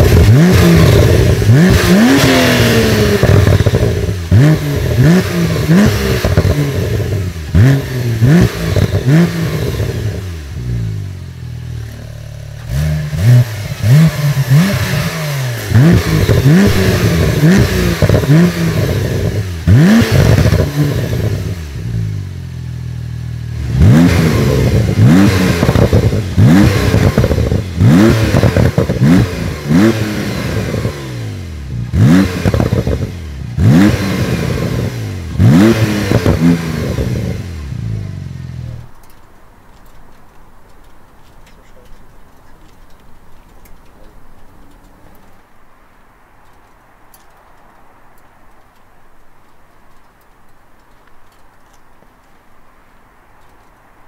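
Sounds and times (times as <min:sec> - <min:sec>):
car engine idling: 0:00.0 - 0:29.9
car engine revving: 0:00.0 - 0:38.9
exhaust pops and crackles: 0:00.0 - 0:54.0.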